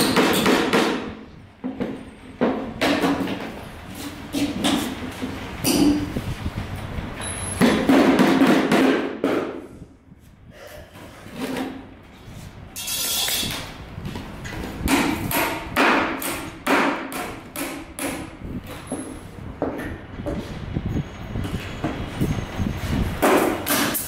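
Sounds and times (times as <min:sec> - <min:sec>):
hammer striking nail into wood: 0:00.0 - 0:01.2, 0:14.9 - 0:18.4, 0:23.2 - 0:24.0.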